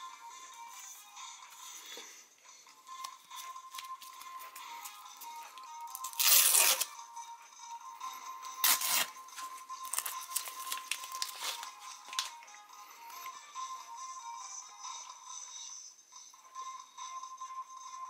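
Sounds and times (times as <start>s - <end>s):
background music: 0.0s - 18.0s
paper envelope ripping: 6.0s - 6.9s, 8.6s - 9.2s, 9.8s - 12.3s
paper crinkling and rustling: 8.6s - 12.4s.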